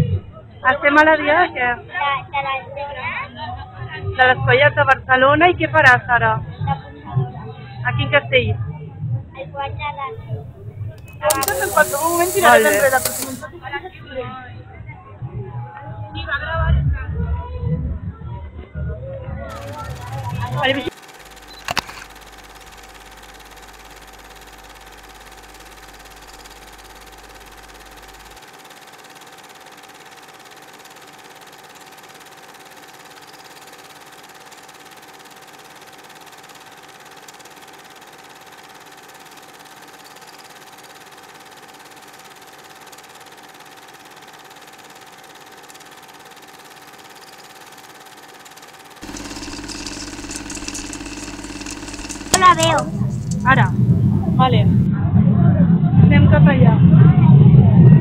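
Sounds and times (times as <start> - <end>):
steady machine hum: 10.4 - 14.0, 19.5 - 54.9.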